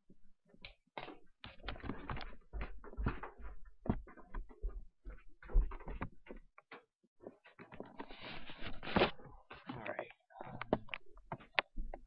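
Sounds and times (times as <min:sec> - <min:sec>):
footsteps going down stairs: 0:00.5 - 0:07.5
handheld camera rubbing and knocking: 0:01.0 - 0:12.0.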